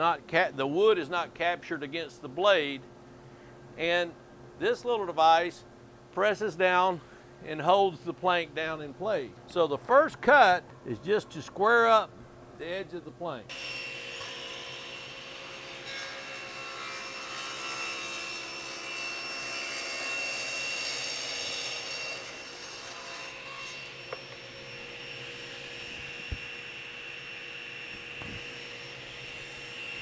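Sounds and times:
table saw cutting wood: 13.5s - 30.0s
table saw running: 13.5s - 30.0s.

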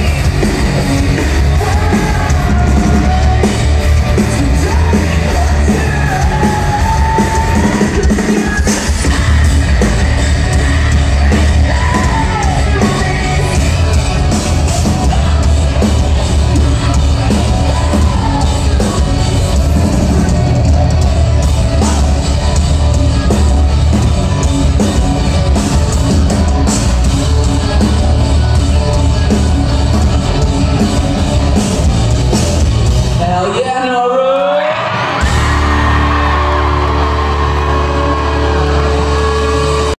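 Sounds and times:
electric guitar: 0.0s - 33.2s, 34.4s - 40.0s
drums: 0.0s - 40.0s
live rock band playing: 0.0s - 40.0s.

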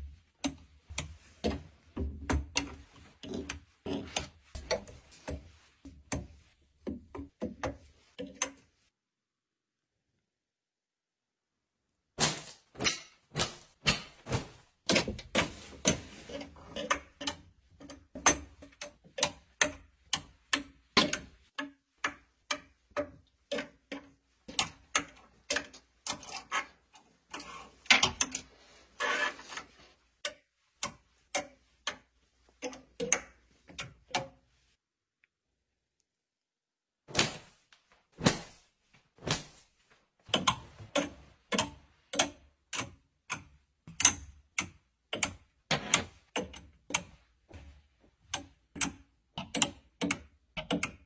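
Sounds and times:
wire hangers clicking on a rail: 40.3s - 47.1s.

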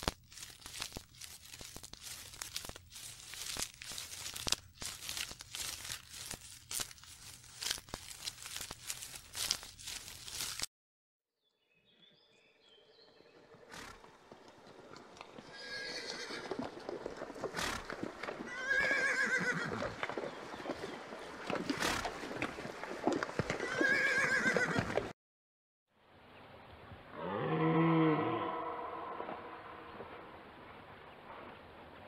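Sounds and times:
horse whinnying: 15.5s - 16.6s, 18.4s - 20.0s, 23.5s - 25.0s
deer stag roaring: 27.1s - 29.4s.

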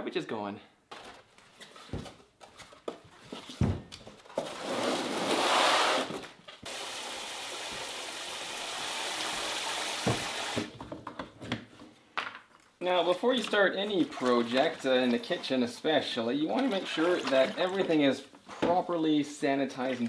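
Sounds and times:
faucet running into bucket: 6.6s - 10.7s, 16.6s - 18.1s.

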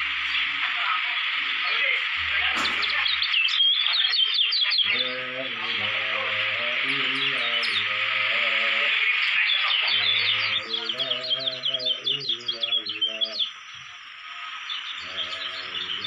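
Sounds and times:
white-eye chirping: 2.2s - 16.0s
steady hiss: 4.8s - 16.0s.

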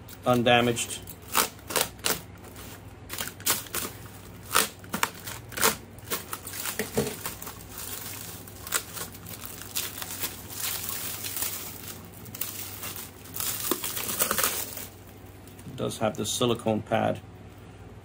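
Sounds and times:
plastic wrap crinkling: 0.2s - 15.7s.

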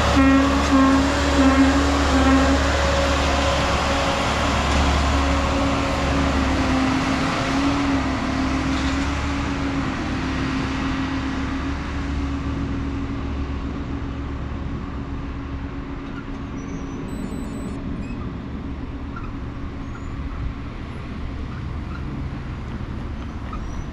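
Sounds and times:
rail machine engine humming: 0.0s - 23.9s
road traffic: 0.0s - 23.9s.

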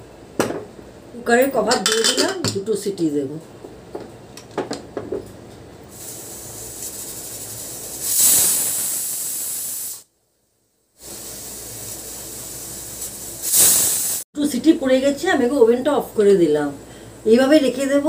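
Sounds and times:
pressure cooker hissing: 5.9s - 10.1s, 11.0s - 14.3s.

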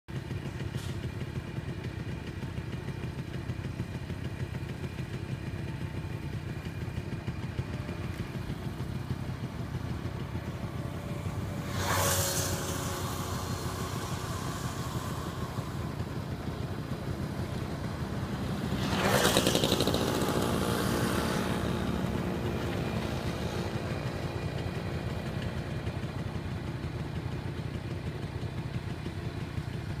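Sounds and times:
vehicles passing by: 0.1s - 30.0s
low steady rumble: 0.2s - 19.4s.

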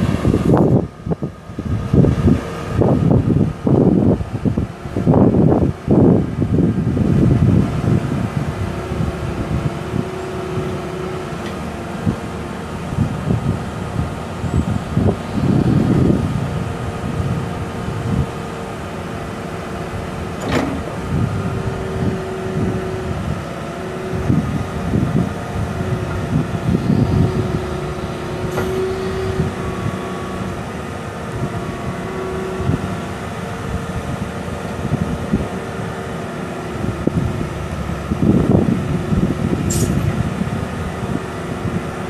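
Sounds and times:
excavator diesel engine surging: 0.0s - 42.0s
sharp metallic clanks: 39.7s - 40.1s.

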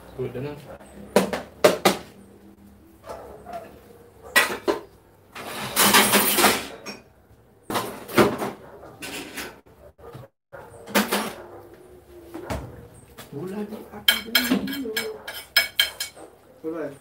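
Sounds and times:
dishes and cutlery clinking: 4.2s - 7.1s, 10.9s - 11.4s, 14.0s - 16.3s
dishes clattering: 4.2s - 7.1s, 10.9s - 11.4s, 14.0s - 16.2s.

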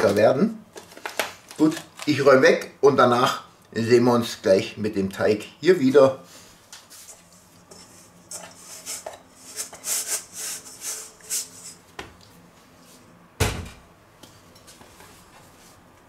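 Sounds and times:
dough scraping in a steel bowl: 6.9s - 11.8s.

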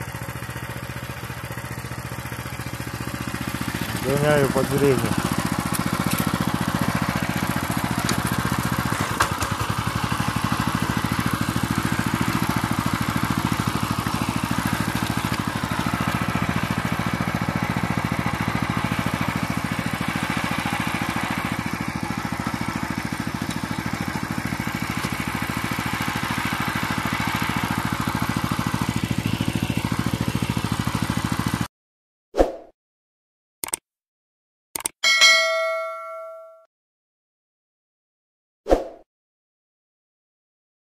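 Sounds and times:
petrol engine running under load: 0.1s - 31.7s.

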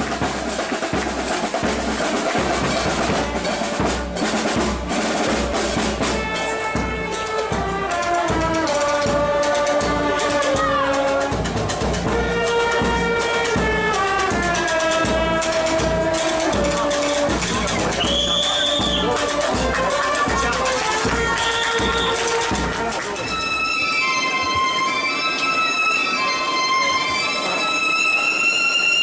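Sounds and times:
bass drum beat: 0.0s - 23.0s
procession band drums: 0.0s - 23.7s
brass melody: 0.0s - 29.0s.

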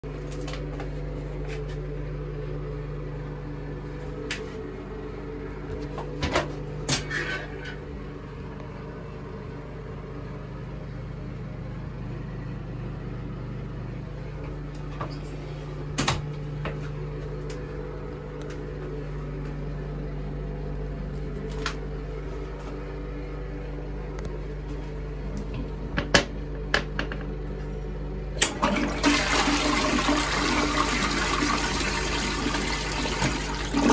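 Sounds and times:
low machine hum: 0.0s - 33.9s
toilet flushing: 28.4s - 33.9s.

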